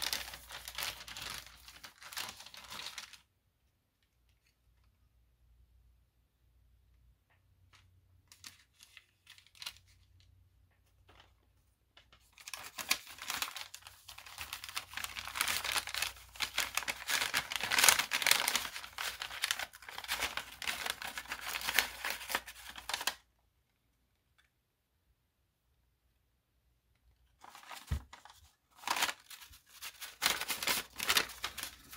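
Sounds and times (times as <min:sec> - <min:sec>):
paper crinkling and rustling: 0:00.0 - 0:03.3, 0:07.7 - 0:23.2, 0:27.3 - 0:31.9.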